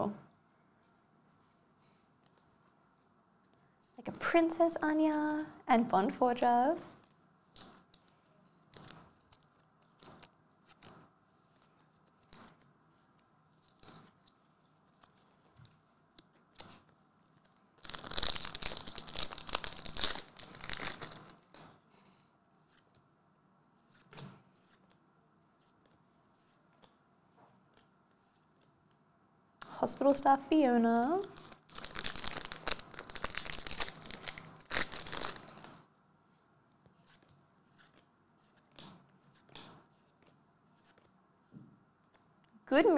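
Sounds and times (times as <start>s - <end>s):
cards tapping and ticking: 6.9s - 12.7s, 36.8s - 42.5s
foil pack tearing and crinkling: 17.8s - 21.2s, 31.3s - 35.6s.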